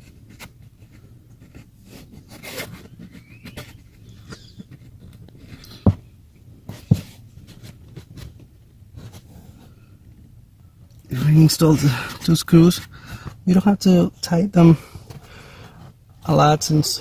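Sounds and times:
dull thumps: 0:05.6 - 0:07.2.

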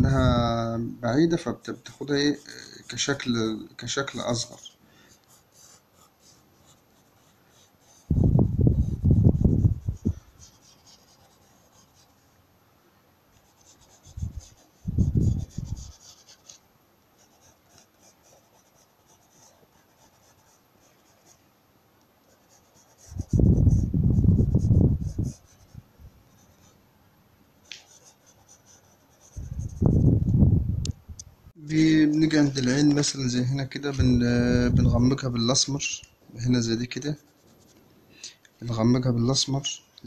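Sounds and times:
pencil scratching on paper: 0:04.1 - 0:12.2, 0:13.4 - 0:16.6, 0:17.2 - 0:21.4, 0:22.3 - 0:25.8, 0:27.8 - 0:30.0
dull rubbing on paper: 0:05.4 - 0:12.2, 0:13.5 - 0:16.6, 0:22.3 - 0:25.8, 0:27.8 - 0:30.1.

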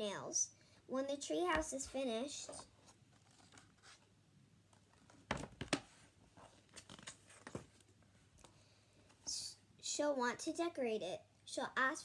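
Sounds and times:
paper page rustling: 0:03.1 - 0:04.1, 0:04.9 - 0:07.9.

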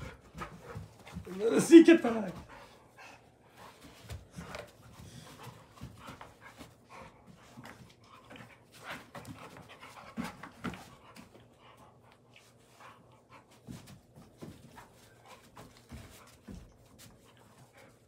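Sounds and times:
dogs panting: 0:00.0 - 0:18.0
dogs scuffling: 0:00.0 - 0:18.0.

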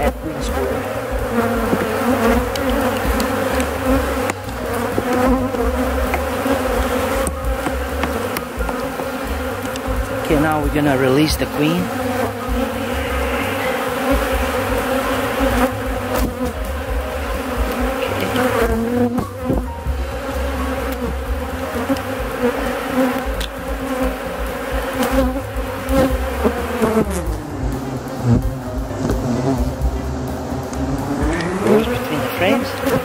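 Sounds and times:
bees buzzing: 0:00.0 - 0:33.0.

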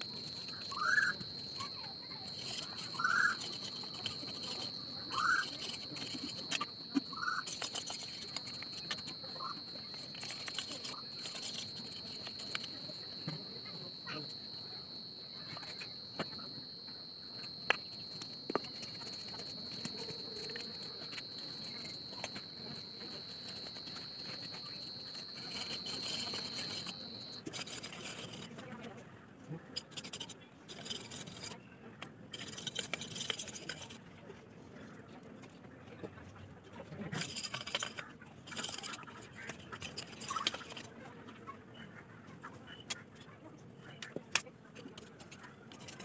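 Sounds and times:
knife scraping bamboo: 0:00.0 - 0:13.2, 0:17.6 - 0:28.6, 0:29.8 - 0:31.6, 0:32.3 - 0:34.0, 0:37.2 - 0:40.9, 0:44.8 - 0:46.0
high-pitched insect drone: 0:00.0 - 0:28.4.

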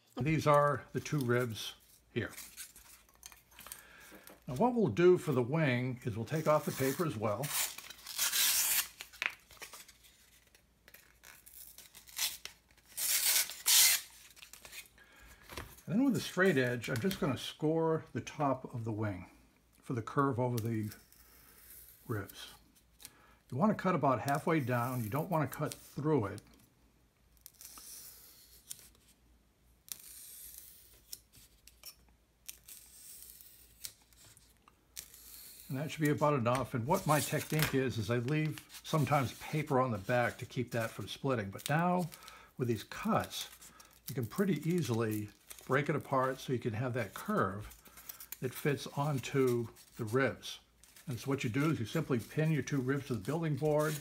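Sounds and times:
paper ripping off foam board: 0:06.3 - 0:10.6, 0:11.2 - 0:14.9, 0:35.0 - 0:42.1.

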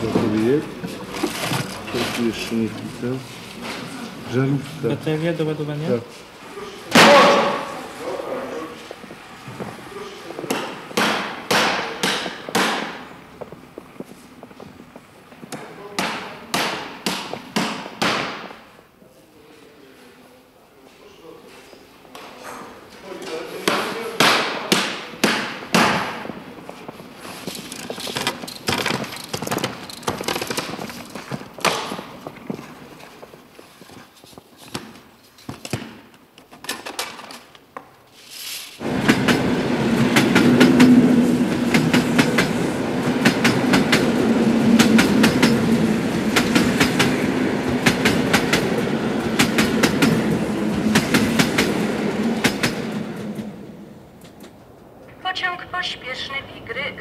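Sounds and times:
train rumbling: 0:00.0 - 0:15.5, 0:38.8 - 0:57.0
train wheels clacking on rails: 0:09.2 - 0:14.6, 0:38.8 - 0:54.4.

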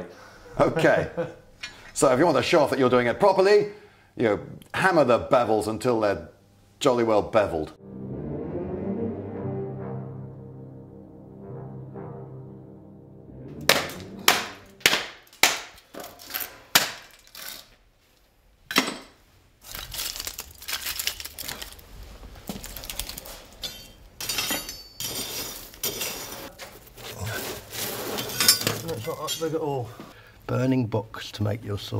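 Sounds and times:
orchestral music: 0:07.8 - 0:15.5
kindling cracking: 0:13.7 - 0:17.7, 0:19.6 - 0:24.1
wooden sticks clattering: 0:13.7 - 0:17.8.

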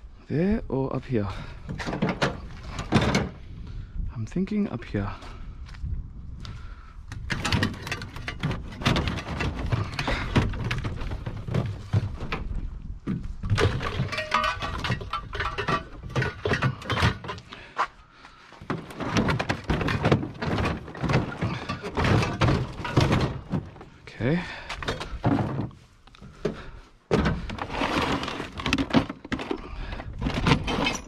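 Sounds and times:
metal tubes clanking and rattling: 0:01.3 - 0:03.5, 0:07.2 - 0:12.6, 0:13.4 - 0:17.6, 0:18.6 - 0:31.0.

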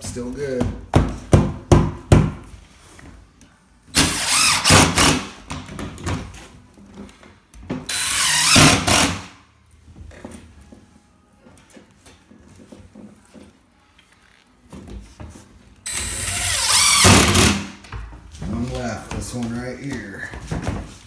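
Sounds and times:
power drill driving screws: 0:04.0 - 0:05.4, 0:07.9 - 0:09.3, 0:15.9 - 0:17.7.

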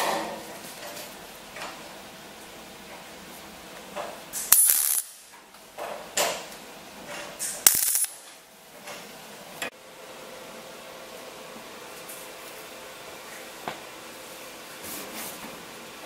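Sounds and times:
welding bursts: 0:04.3 - 0:05.3, 0:07.4 - 0:08.3.

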